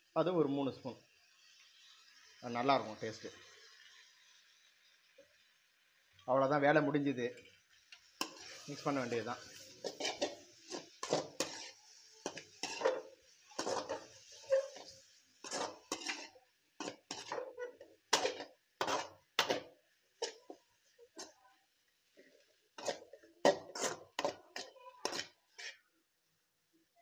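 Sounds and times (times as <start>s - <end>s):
faint hiss: 0.0s - 17.0s
metal ladle scraping in a pan: 7.4s - 21.4s, 22.0s - 25.8s.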